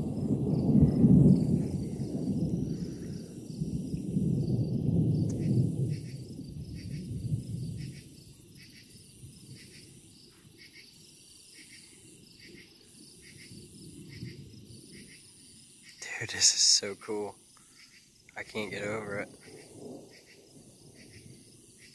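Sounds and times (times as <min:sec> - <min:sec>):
distant thunder rumbling: 0:00.0 - 0:09.8, 0:18.4 - 0:21.9
crickets chirping: 0:00.0 - 0:21.9.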